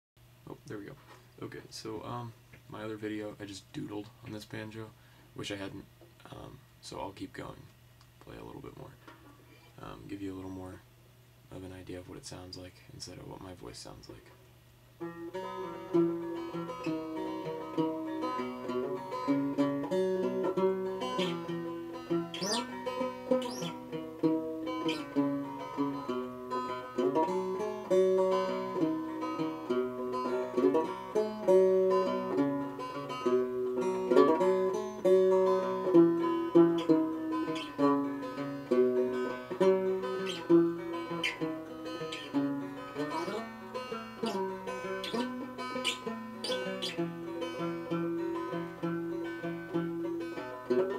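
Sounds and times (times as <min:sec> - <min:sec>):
banjo picking: 0:15.0 - 0:50.9.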